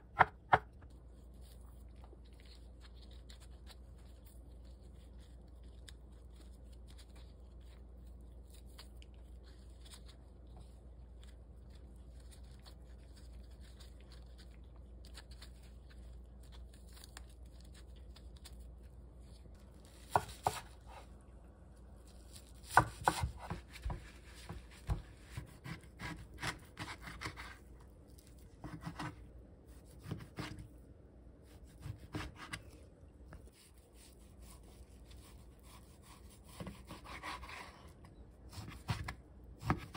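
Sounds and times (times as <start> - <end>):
knife chopping on wooden board: 0.0 - 0.8, 20.1 - 20.8, 22.6 - 27.5
mushrooms torn by hand rustling: 0.1 - 39.9.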